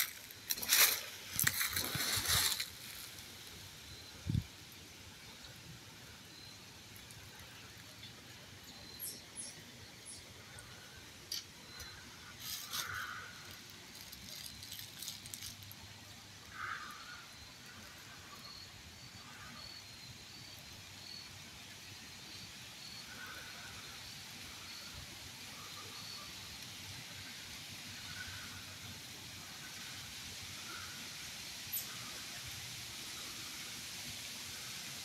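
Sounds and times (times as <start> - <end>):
rustling hiss: 0.0 - 35.0.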